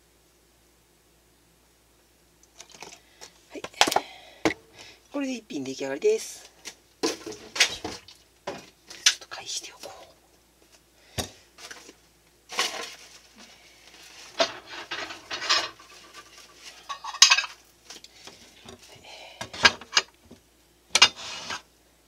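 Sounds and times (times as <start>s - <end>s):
dishes and utensils clattering: 14.3s - 17.6s.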